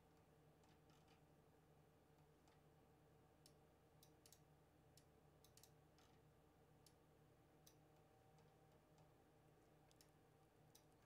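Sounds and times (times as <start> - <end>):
faint steady hum: 0.0 - 11.0
computer mouse clicks: 3.4 - 7.0, 7.6 - 11.0.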